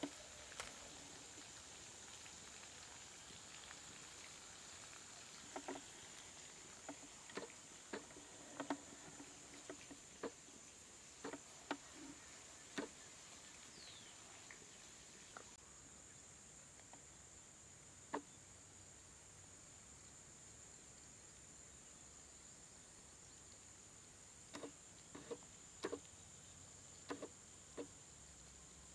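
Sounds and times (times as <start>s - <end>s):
dried leaves crackling: 0.0s - 10.3s.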